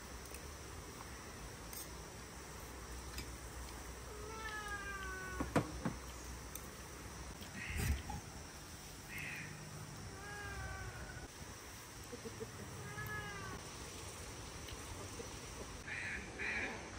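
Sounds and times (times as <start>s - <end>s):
cat meowing: 4.1s - 5.5s, 10.1s - 11.3s, 12.8s - 13.6s.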